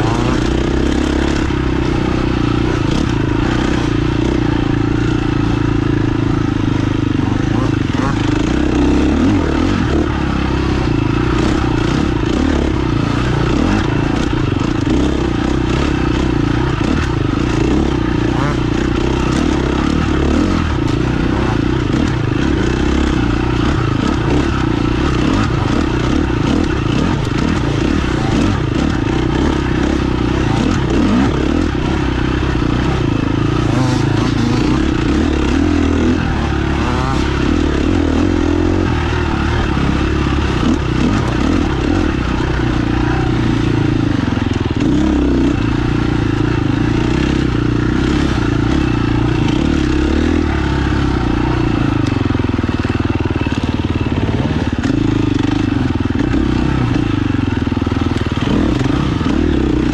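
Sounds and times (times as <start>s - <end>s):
motorcycle engine revving: 0.0s - 59.9s
motorcycle rattles and knocks: 0.0s - 59.9s.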